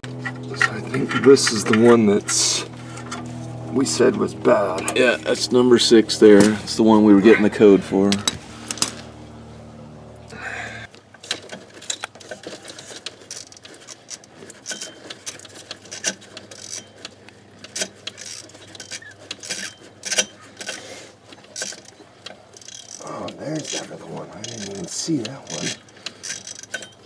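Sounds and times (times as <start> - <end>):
low steady hum: 0.0 - 27.0
ratchet clicking: 11.3 - 20.8, 21.5 - 27.0.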